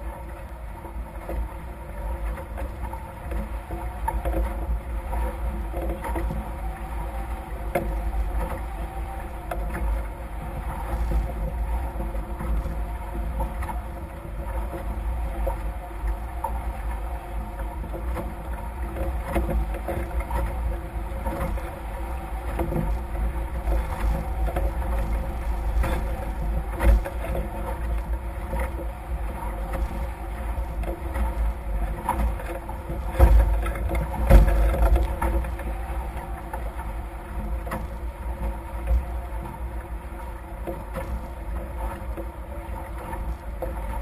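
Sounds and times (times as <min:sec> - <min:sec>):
water rushing past hulls: 0:00.0 - 0:44.0
wind buffeting microphone: 0:00.0 - 0:44.0.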